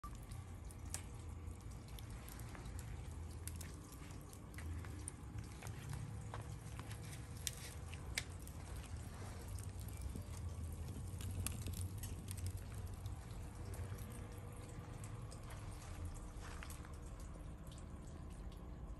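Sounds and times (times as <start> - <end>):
wood fire crackling and popping: 0.0 - 17.9
low steady rumble: 0.0 - 18.9.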